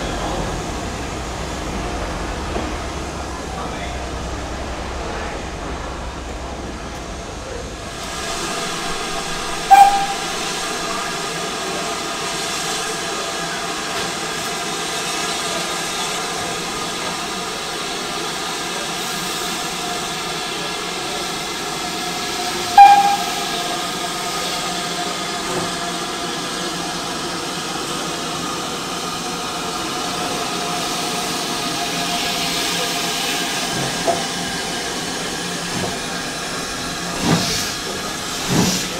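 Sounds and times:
steam locomotive hissing steam: 0:00.0 - 0:38.9
sharp sound with ringing tone: 0:08.5 - 0:11.0, 0:22.8 - 0:23.8.

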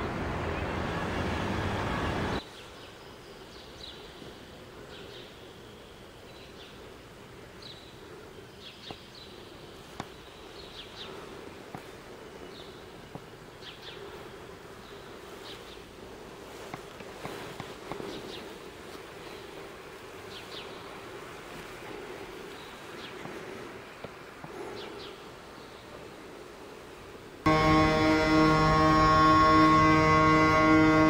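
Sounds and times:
loud outdoor noise: 0:00.0 - 0:02.6, 0:27.5 - 0:31.0
faint steady hum: 0:25.2 - 0:31.0.

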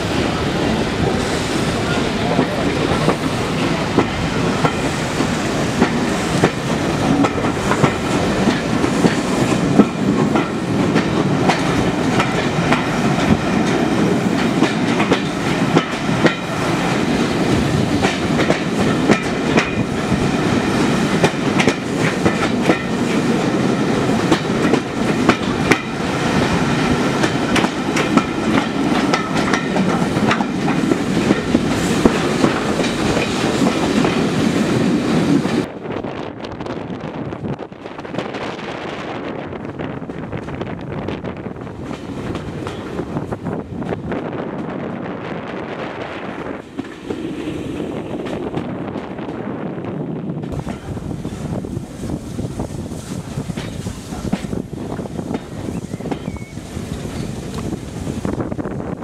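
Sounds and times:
train rumble heard on board: 0:00.0 - 0:59.0
wheels clicking over rail joints: 0:01.9 - 0:17.0, 0:18.0 - 0:34.3.

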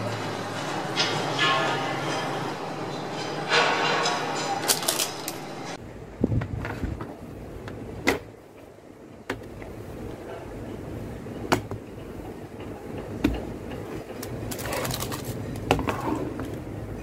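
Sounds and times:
paper rustling: 0:04.6 - 0:05.5.

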